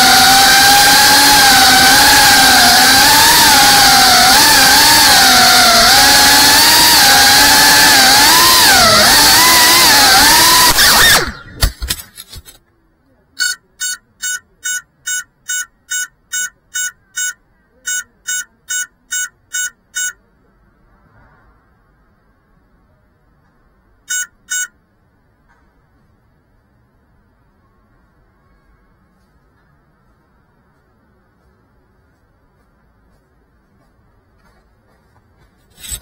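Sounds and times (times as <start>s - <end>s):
drone motors whining: 0.0s - 12.4s, 13.4s - 20.2s, 24.1s - 24.7s, 35.8s - 36.0s
short electronic beeps: 13.4s - 20.3s, 24.1s - 24.8s.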